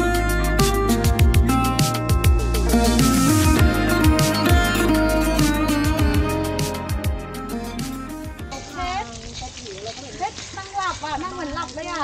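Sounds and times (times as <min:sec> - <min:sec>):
steady beat with deep bass: 0:00.0 - 0:08.5
plucked guitar melody: 0:00.0 - 0:08.9.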